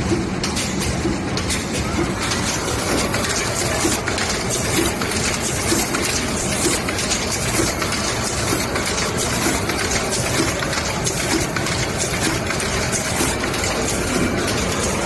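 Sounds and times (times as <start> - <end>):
filling machine running: 0.0 - 15.0
rapid machine clicks: 0.0 - 15.0.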